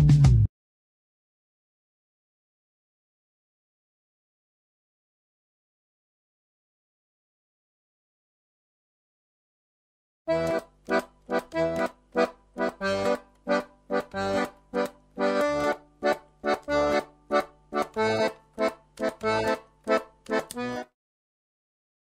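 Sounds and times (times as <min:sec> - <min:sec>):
accordion waltz: 0:10.3 - 0:21.0.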